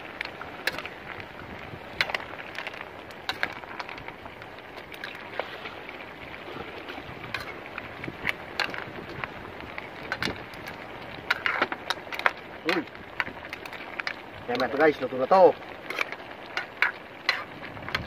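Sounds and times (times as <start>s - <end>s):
food simmering hiss: 0.0s - 18.0s
metal spoon scraping a pan: 6.5s - 7.6s, 11.3s - 12.3s, 15.8s - 17.5s.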